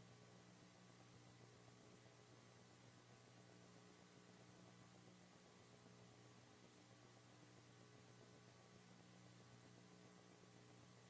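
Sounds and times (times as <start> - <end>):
faint low hum with hiss: 0.0 - 11.0.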